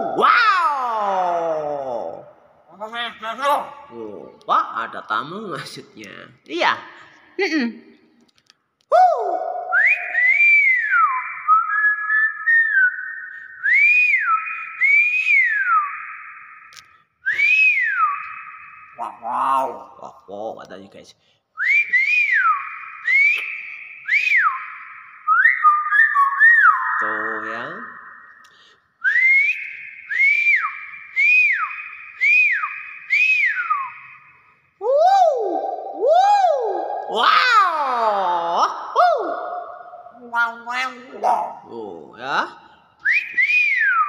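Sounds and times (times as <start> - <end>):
bird whistling call: 9.0 - 19.8, 21.6 - 37.2.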